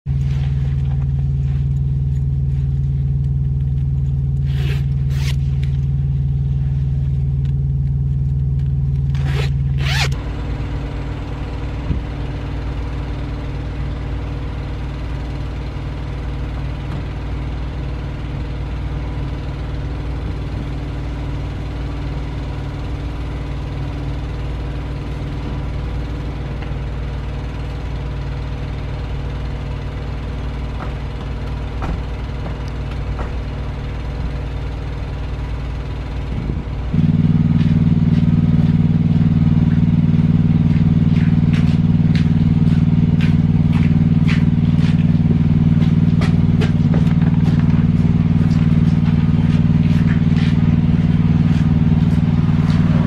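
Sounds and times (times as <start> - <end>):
loud steady low hum: 0.0 - 53.0
diesel truck engine idling: 0.1 - 53.0
jacket zipper pulled: 4.4 - 5.4, 9.1 - 10.2.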